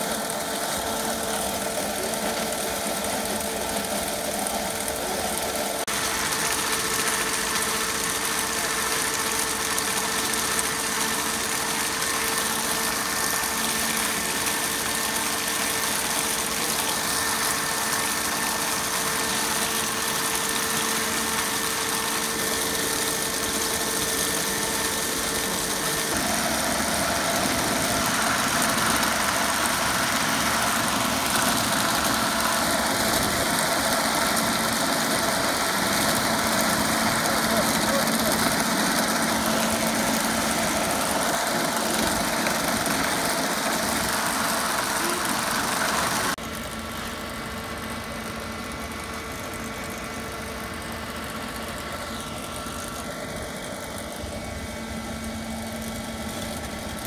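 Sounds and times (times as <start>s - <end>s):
stone-cutting chain saw running: 0.0s - 57.0s.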